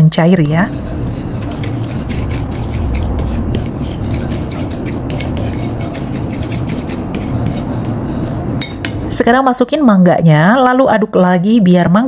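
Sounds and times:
steady low rumble: 0:00.0 - 0:10.6
spoon scraping ceramic bowl: 0:01.4 - 0:09.1.

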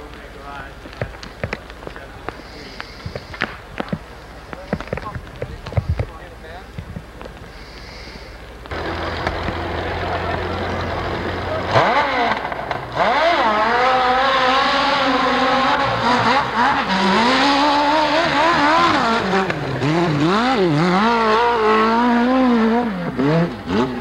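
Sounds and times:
dirt bike engine revving: 0:07.6 - 0:24.0.

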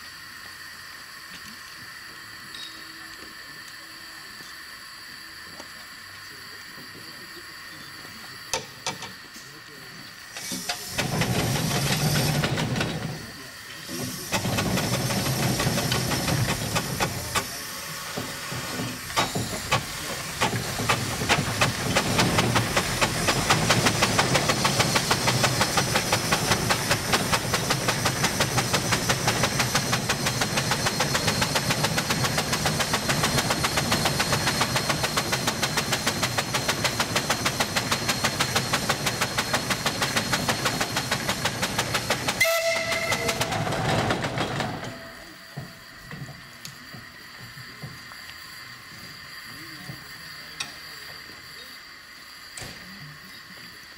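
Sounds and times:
steam engine exhaust chuffing: 0:00.0 - 0:53.9
steam hiss: 0:00.0 - 0:53.9
thin high whine: 0:01.3 - 0:10.8.

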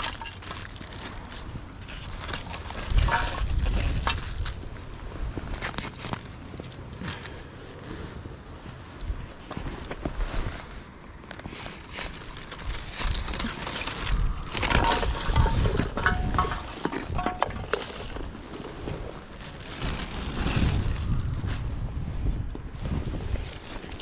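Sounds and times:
scraping and knocking on concrete: 0:00.0 - 0:04.6, 0:12.5 - 0:18.8
plastic litter crinkling: 0:00.0 - 0:04.9, 0:11.3 - 0:21.4.

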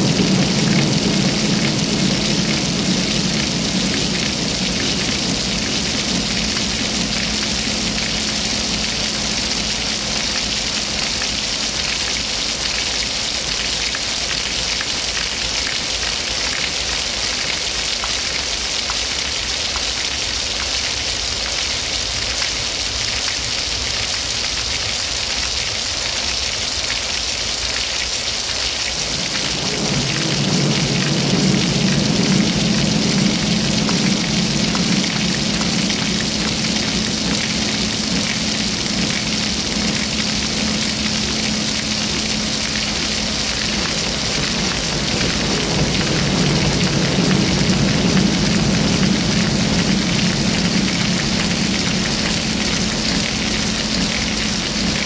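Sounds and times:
low hum: 0:00.0 - 0:12.2, 0:28.9 - 0:55.0.

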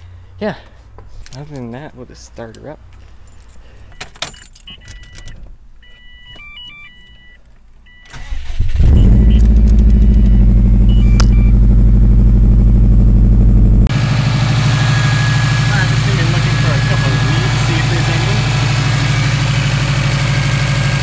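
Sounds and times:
short electronic beeps: 0:04.7 - 0:11.6
car engine starting and idling: 0:04.7 - 0:21.0.

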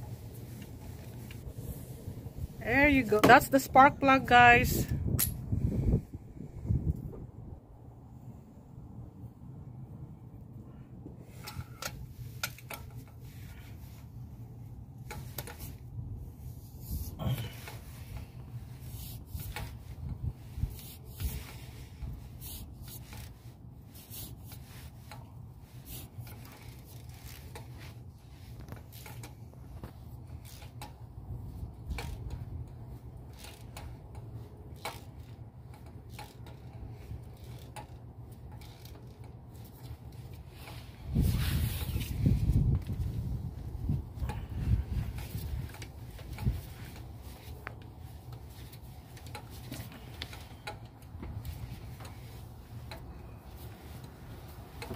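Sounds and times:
ratchet wrench clicking: 0:25.8 - 0:27.9, 0:30.3 - 0:31.0, 0:31.8 - 0:40.7.

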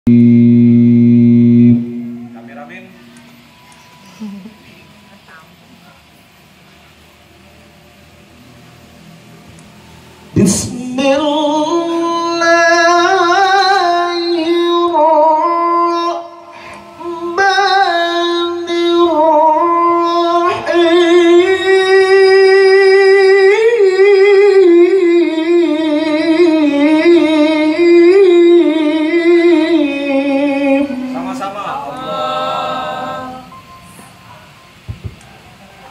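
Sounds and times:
man reciting melodically: 0:10.3 - 0:33.5.

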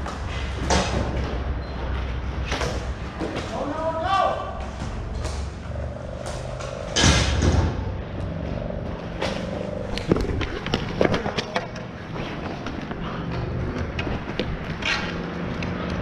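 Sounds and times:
arena hum: 0:00.0 - 0:16.0
hockey sticks and ball clacking: 0:09.0 - 0:16.0.

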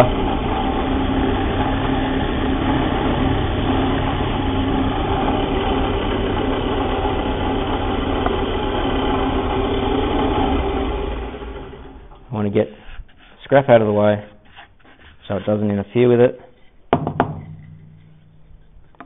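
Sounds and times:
drill press boring into wood: 0:00.0 - 0:12.3.

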